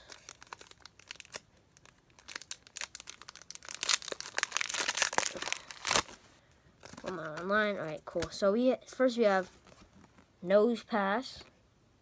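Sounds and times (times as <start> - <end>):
foil wrapper crinkling and tearing: 0.0 - 7.5.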